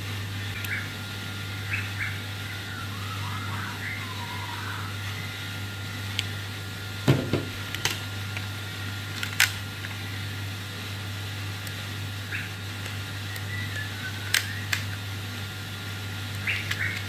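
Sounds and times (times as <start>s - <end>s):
steady low hum: 0.0s - 17.0s
dull knock: 7.1s - 7.5s
plastic toy handling clicks: 9.1s - 10.0s, 14.3s - 15.0s, 16.4s - 17.0s.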